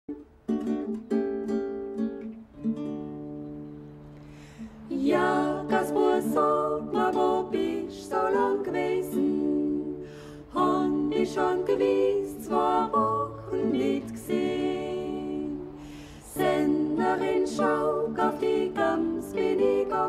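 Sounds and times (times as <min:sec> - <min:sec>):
plucked guitar chords: 0:00.1 - 0:09.6
voices singing in harmony: 0:04.6 - 0:20.0.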